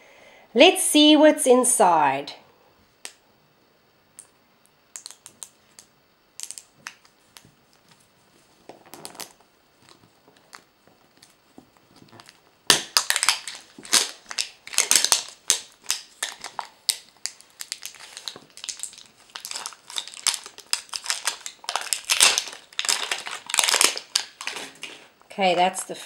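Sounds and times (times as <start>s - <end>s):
plastic wrapper crinkling and tearing: 8.7s - 25.1s.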